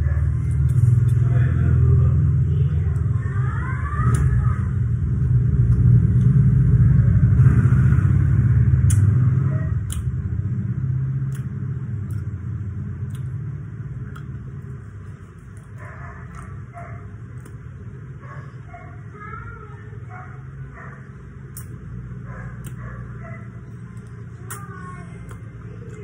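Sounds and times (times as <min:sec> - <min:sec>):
low steady rumble: 0:00.0 - 0:26.0
lip-smacking clicks: 0:08.8 - 0:10.2, 0:11.2 - 0:14.8, 0:21.5 - 0:21.8, 0:22.5 - 0:23.0, 0:23.7 - 0:26.0.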